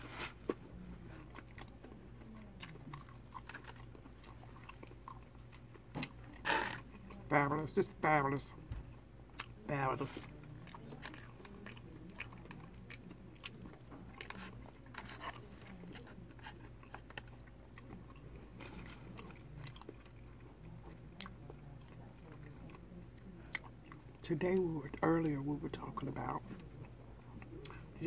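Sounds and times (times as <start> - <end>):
person chewing crunchy food: 0.0 - 7.3, 9.3 - 24.2.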